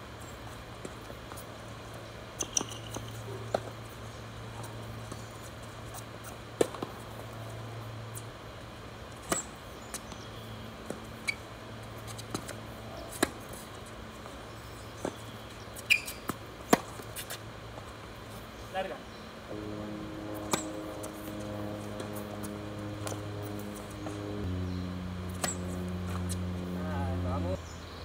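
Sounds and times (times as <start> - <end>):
tennis ball struck by racket: 20.4 - 21.4, 25.3 - 26.4.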